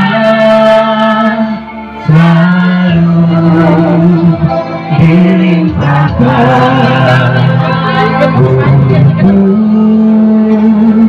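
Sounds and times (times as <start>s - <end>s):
instrumental accompaniment: 0.0s - 11.0s
slow song sung: 0.0s - 11.0s.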